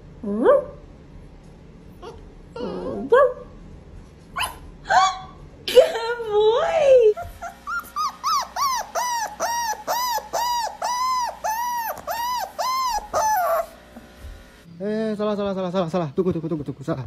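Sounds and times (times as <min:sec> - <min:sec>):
dog whining yelps: 0:04.4 - 0:05.3, 0:07.1 - 0:13.8
dog wavering cry: 0:07.0 - 0:13.8.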